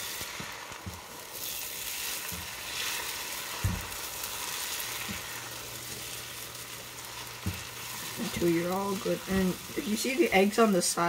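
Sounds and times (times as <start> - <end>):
eggs sizzling in a frying pan: 0.0 - 11.0.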